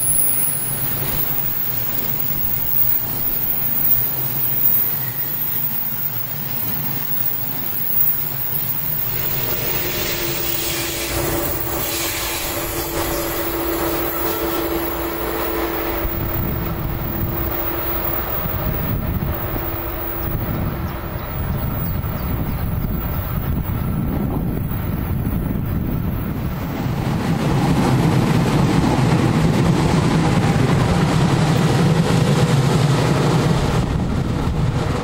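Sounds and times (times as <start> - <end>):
electric locomotive hum: 0.0 - 35.0
train wheels rumbling on rail: 0.0 - 35.0
wind buffeting microphone: 10.7 - 35.0.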